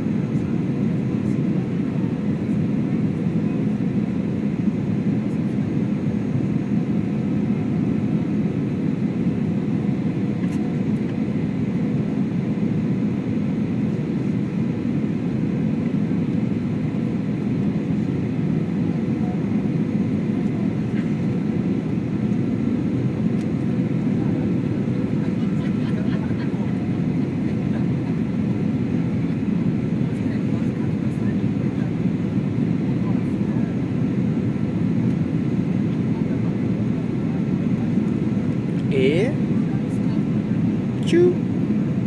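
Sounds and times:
jet engine and airflow noise: 0.0 - 42.0.

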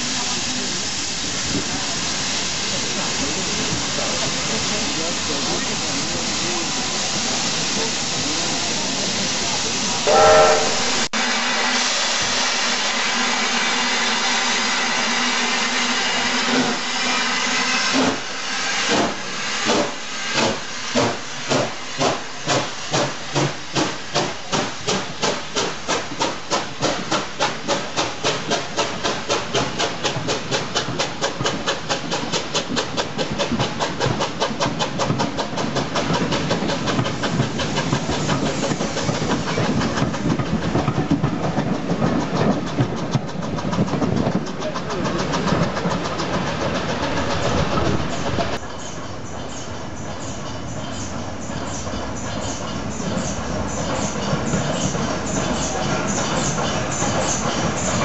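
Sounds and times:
steam hissing: 0.0 - 58.0
steam locomotive whistle: 10.0 - 20.6
locomotive exhaust beats: 14.6 - 58.0.

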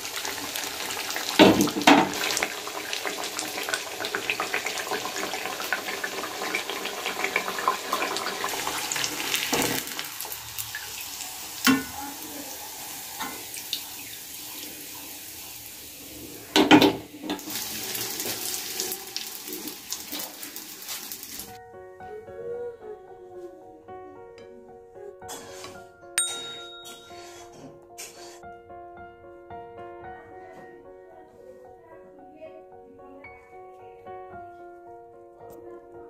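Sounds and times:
hot oil sizzling: 0.0 - 21.6.

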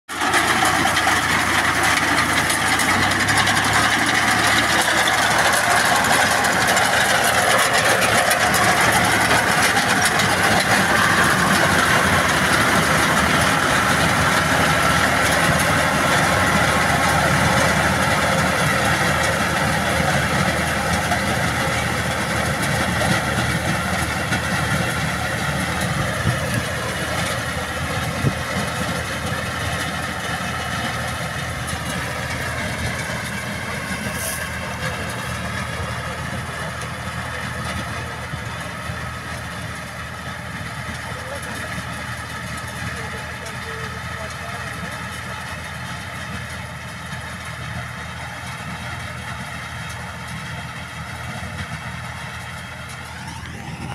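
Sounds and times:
tractor engine running: 0.1 - 53.9.

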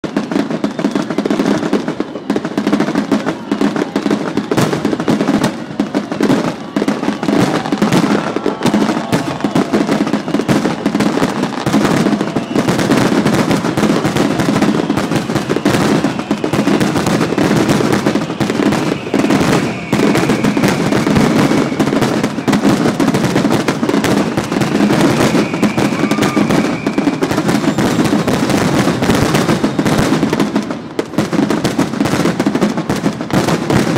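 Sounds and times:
fireworks bursting and crackling: 0.0 - 33.9
high whistling tone: 18.2 - 22.7, 24.2 - 27.9.

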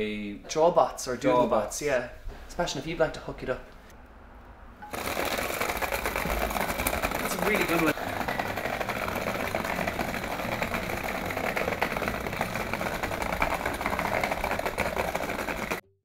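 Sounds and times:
tin rattling from vibration motor: 4.8 - 15.8.

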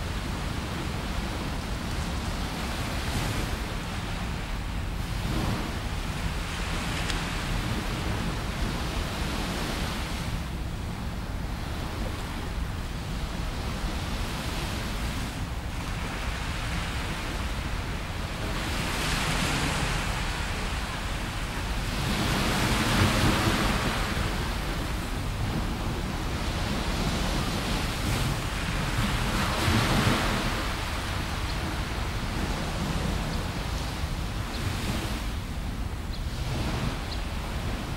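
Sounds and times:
small waves breaking on sand: 13.4 - 35.3.

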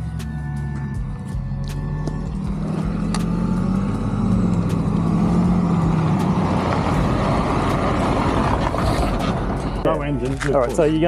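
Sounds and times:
motorcycle engine running: 0.8 - 9.9
rushing noise: 2.6 - 9.8.

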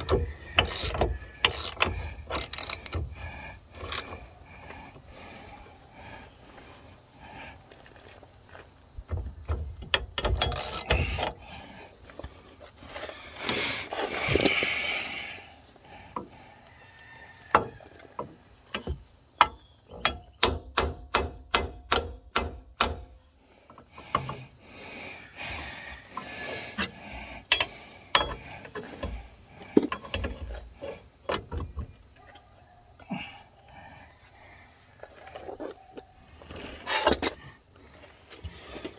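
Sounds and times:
socket ratchet clicking: 0.0 - 3.1
metal parts scraping: 0.0 - 3.2.

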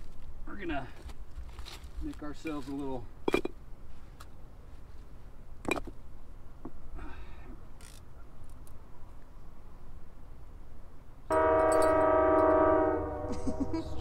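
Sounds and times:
steady low rumble: 12.7 - 14.0.

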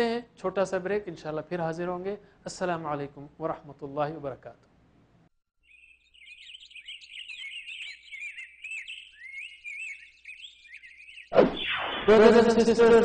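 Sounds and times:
small birds chirping: 5.6 - 11.4
loud sudden sweeping sound: 11.3 - 12.5.

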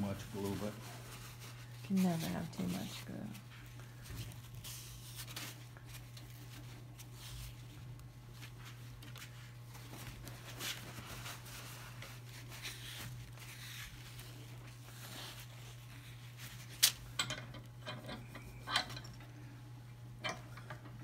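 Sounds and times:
cloth rag rubbing and swishing: 0.0 - 16.8.

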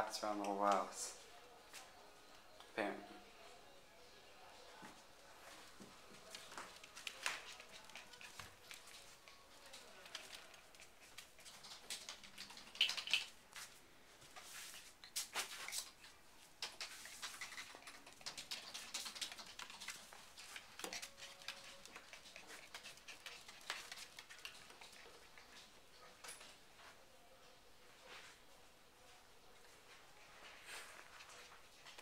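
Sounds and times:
puppy claws clicking on hardwood: 9.7 - 13.3, 16.6 - 25.5.

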